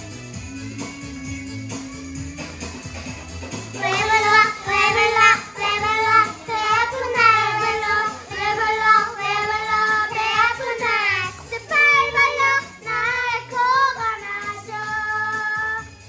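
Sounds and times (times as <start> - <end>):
recorded backing track: 0.0 - 16.0
children singing: 3.8 - 15.9.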